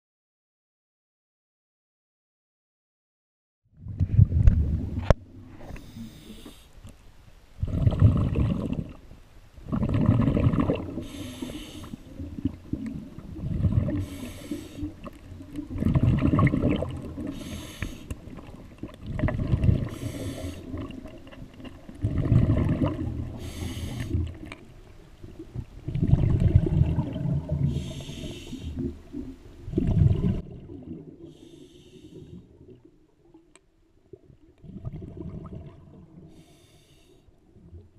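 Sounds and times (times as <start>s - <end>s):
exhaled bubbles rumbling underwater: 3.7s - 6.4s, 7.6s - 36.6s, 37.3s - 37.9s
regulator inhalation hiss: 5.7s - 6.8s, 11.0s - 12.1s, 14.0s - 15.0s, 17.3s - 18.2s, 19.9s - 20.8s, 23.4s - 24.2s, 27.7s - 28.9s, 31.3s - 32.4s, 36.3s - 37.2s.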